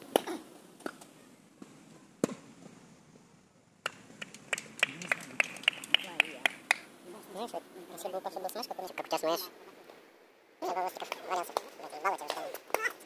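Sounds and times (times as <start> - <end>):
tennis ball hits: 0.1 - 2.5.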